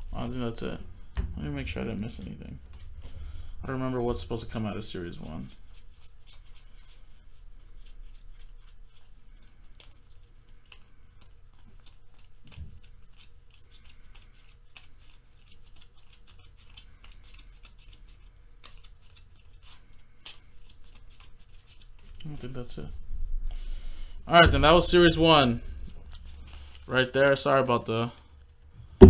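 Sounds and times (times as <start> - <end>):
trading cards flipped through: 7.8 - 22.1.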